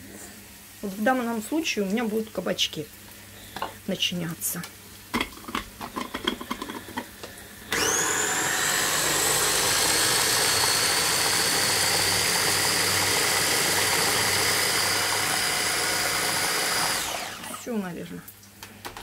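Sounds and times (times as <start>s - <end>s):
food chopper motor whine: 7.7s - 17.7s.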